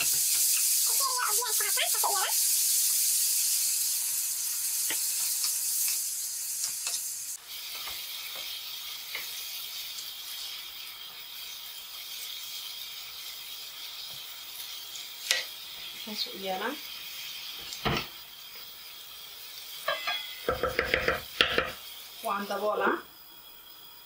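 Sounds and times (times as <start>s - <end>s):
chicken sizzling in a frying pan: 0.0s - 24.0s
wooden spoon knocking on pan: 19.9s - 21.8s.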